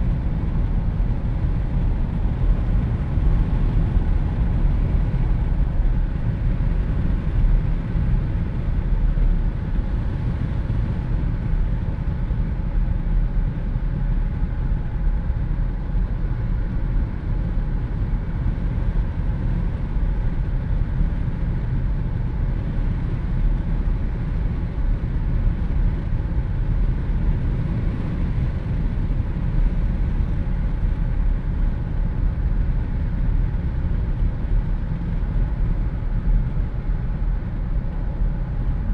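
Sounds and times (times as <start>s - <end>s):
road and engine rumble: 0.0s - 38.9s.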